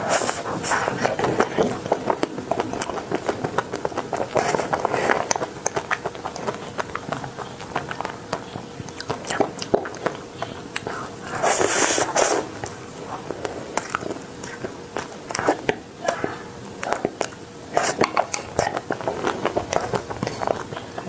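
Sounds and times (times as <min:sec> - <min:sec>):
wet lips sucking and licking: 0:00.1 - 0:21.0
sharp mouth smacks and clicks: 0:01.0 - 0:11.0.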